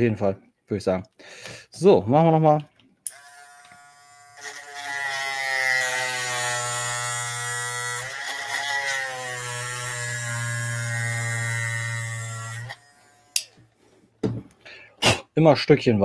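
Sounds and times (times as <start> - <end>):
rotary tool grinding plastic: 3.1 - 13.6.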